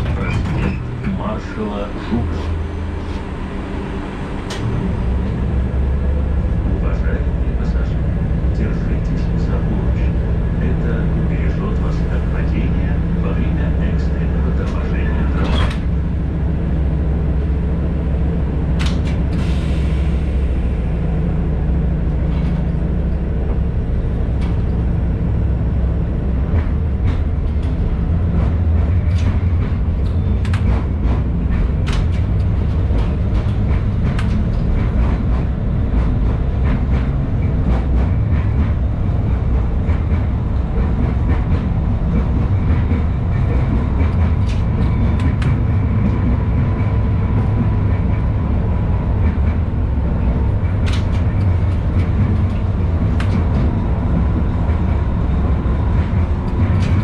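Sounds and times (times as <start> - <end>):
tram rumbling on track: 0.0 - 57.0
sharp clicks and knocks: 18.8 - 19.3, 26.5 - 38.7, 50.6 - 55.0.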